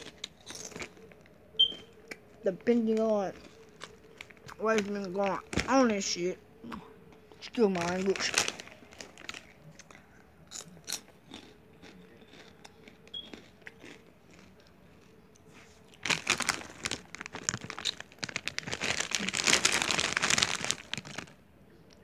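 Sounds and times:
foil snack bag crinkling: 0.0 - 1.2, 2.7 - 6.1, 7.4 - 9.9, 15.8 - 21.4
snack being chewed: 9.0 - 19.9.

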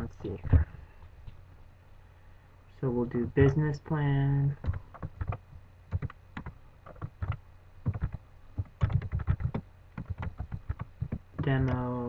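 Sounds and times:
keyboard typing: 4.6 - 12.0.

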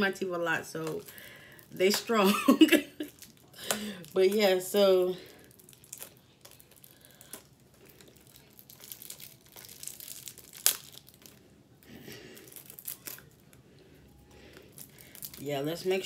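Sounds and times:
packaging crinkling and tearing: 3.0 - 16.0.

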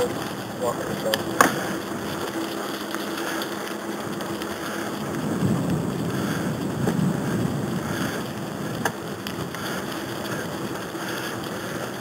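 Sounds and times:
faint steady hum: 0.0 - 12.0
tyres rolling through leaves: 0.0 - 12.0.

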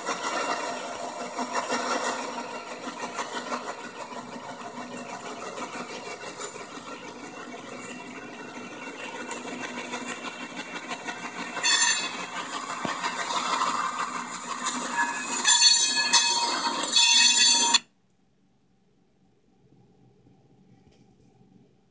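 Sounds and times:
diesel locomotive passing: 0.0 - 17.8
high-pitched wheel squeal: 10.9 - 17.8.

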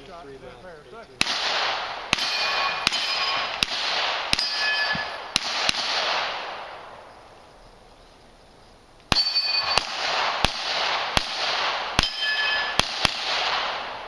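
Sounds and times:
echoing gunshots: 1.2 - 7.2, 9.1 - 14.0
steel target ringing: 2.1 - 3.6, 4.3 - 5.3, 9.1 - 9.9, 12.0 - 12.9.

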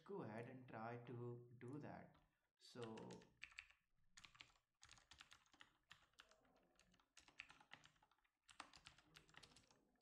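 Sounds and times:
typing on computer keyboard: 2.8 - 10.0.

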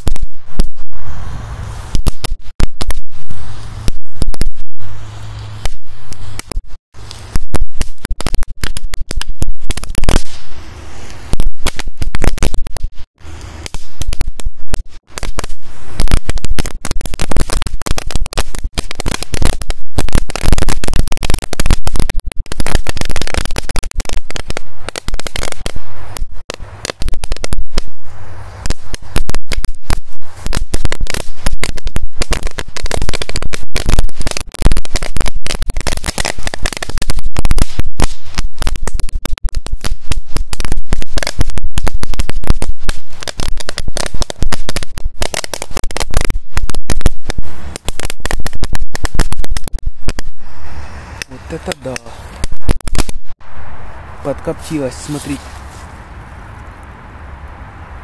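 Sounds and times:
firecracker belt banging: 28.6 - 50.3.

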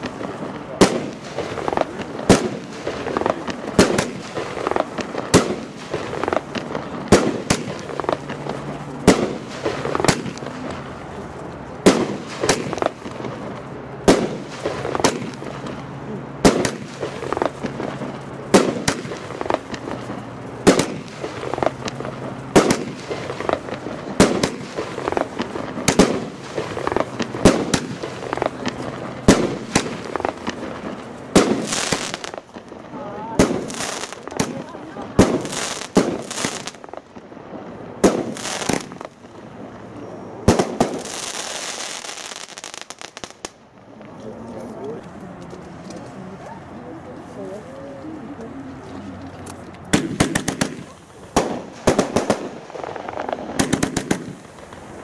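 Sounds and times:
small firework pops: 0.0 - 10.8, 11.8 - 15.8, 16.4 - 37.3, 38.0 - 39.4, 40.4 - 46.5, 48.4 - 55.0
firework shells bursting: 49.9 - 55.0.

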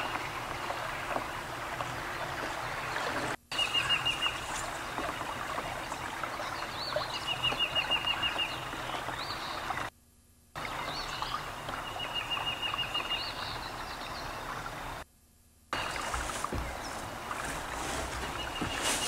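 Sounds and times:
birds trilling: 1.9 - 9.9, 15.8 - 19.0.

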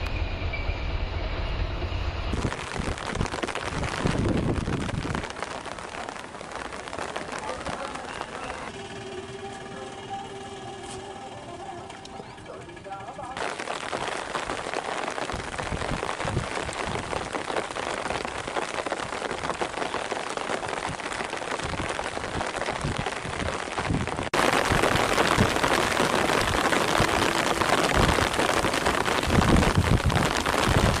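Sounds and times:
heavy rain hissing: 2.3 - 11.4, 13.4 - 31.0.

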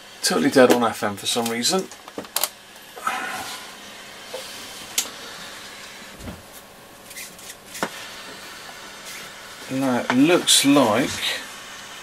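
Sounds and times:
steady hiss: 0.0 - 12.0
radio handling clicks and knocks: 1.9 - 2.6.

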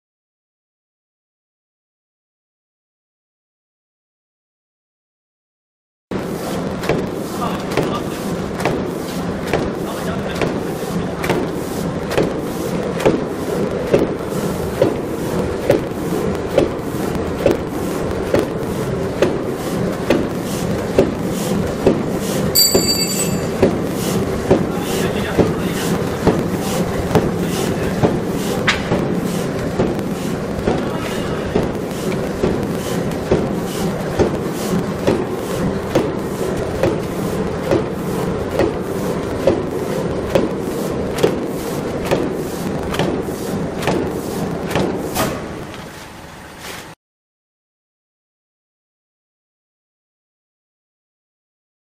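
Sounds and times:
steady mechanical running noise: 6.1 - 46.6.

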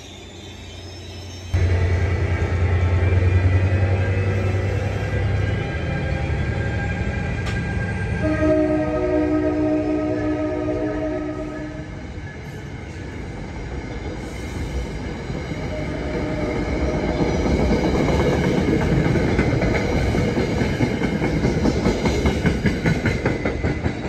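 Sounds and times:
train wheels rumbling on rails: 0.0 - 24.0
train horn: 8.2 - 12.0
wheels clickety-clack over rail joints: 12.4 - 24.0.

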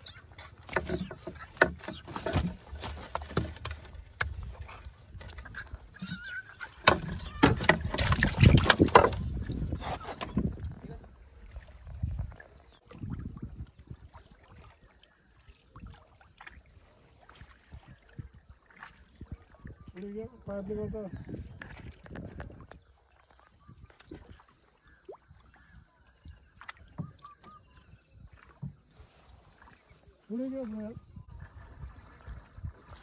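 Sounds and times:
faint water sounds: 0.0 - 33.0
fish and net knocking in boat: 0.4 - 10.6.

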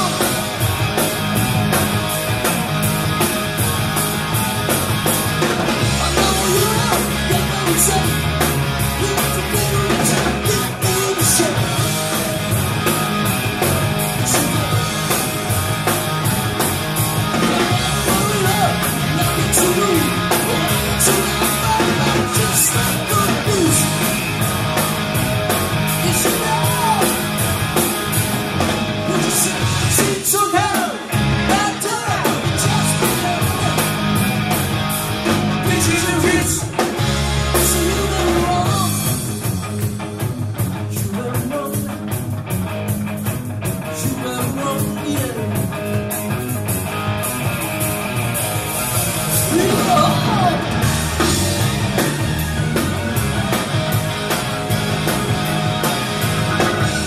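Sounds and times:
man singing: 0.0 - 0.4, 5.8 - 12.2, 14.2 - 15.0, 17.4 - 24.1, 26.0 - 27.2, 29.0 - 34.0, 35.6 - 36.9, 37.5 - 39.2, 40.9 - 42.1, 44.0 - 45.6, 49.4 - 50.9
live rock band playing: 0.0 - 57.0.

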